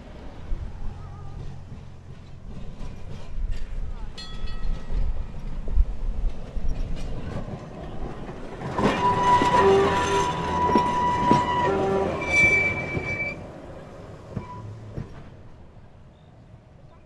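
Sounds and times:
tram rumbling on rails: 0.0 - 17.0
wheels squealing: 6.3 - 15.0.

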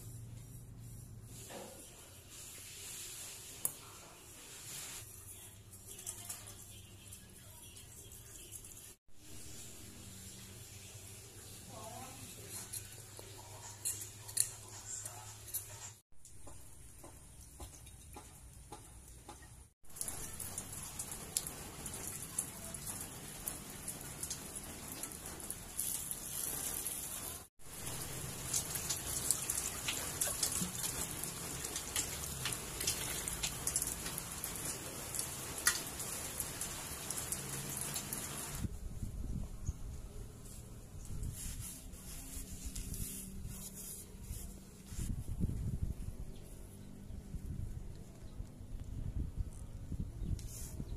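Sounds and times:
water sloshing and pouring: 19.9 - 38.6.

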